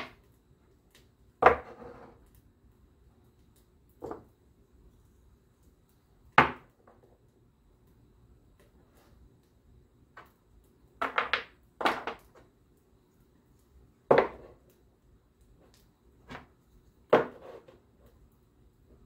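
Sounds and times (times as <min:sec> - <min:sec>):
wooden blocks knocking on wood: 0:06.4 - 0:07.0, 0:11.0 - 0:12.3, 0:14.1 - 0:14.5, 0:17.1 - 0:17.6.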